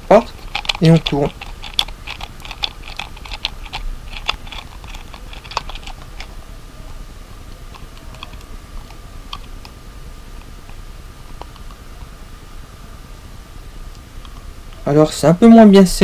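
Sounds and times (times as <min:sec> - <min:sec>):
hard plastic clicking: 0:00.4 - 0:06.3.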